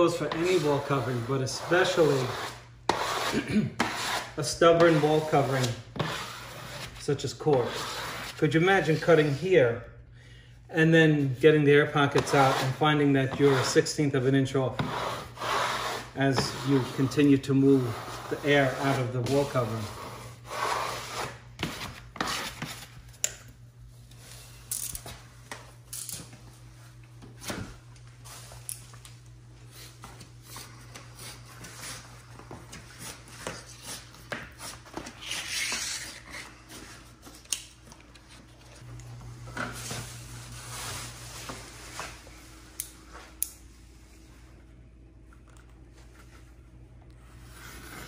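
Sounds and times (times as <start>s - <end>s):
hand rubbing wallpaper: 0.0s - 9.4s, 14.8s - 22.8s, 39.8s - 43.3s
steady low hum: 0.0s - 48.0s.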